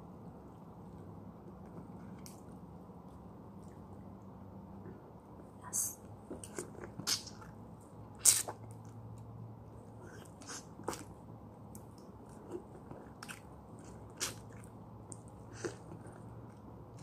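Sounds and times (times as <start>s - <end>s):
person chewing fruit: 10.0s - 11.2s, 11.8s - 17.0s.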